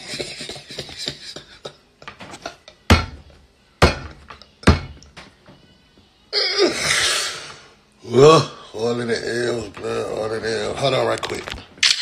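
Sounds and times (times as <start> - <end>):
laughter: 0.0 - 2.8.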